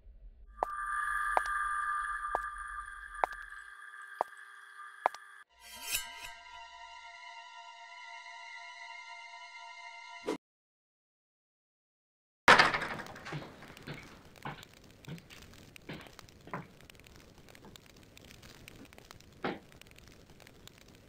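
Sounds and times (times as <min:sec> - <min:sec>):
thud: 0:12.5 - 0:14.6
footsteps on wooden floor: 0:13.3 - 0:15.2.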